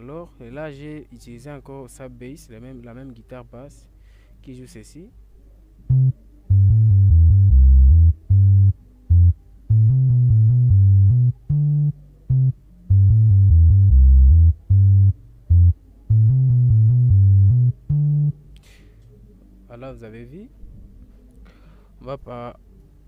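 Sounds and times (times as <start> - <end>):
reggae bass line: 5.9 - 18.4.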